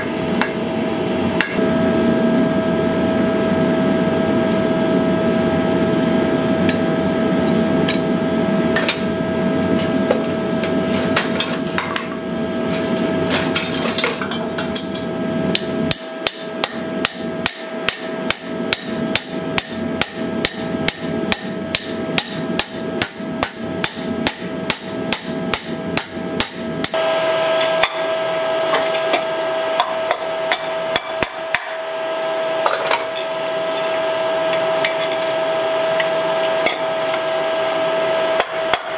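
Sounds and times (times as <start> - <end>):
hammer striking punch on iron: 15.5 - 27.0, 29.8 - 31.8, 38.4 - 38.9.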